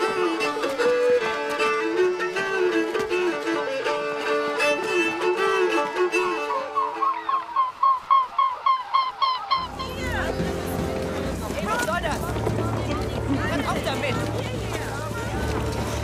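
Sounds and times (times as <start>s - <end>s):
fiddle playing folk dance tune: 0.0s - 7.8s, 9.6s - 16.0s
swans in flight pulsing calls: 4.3s - 12.0s.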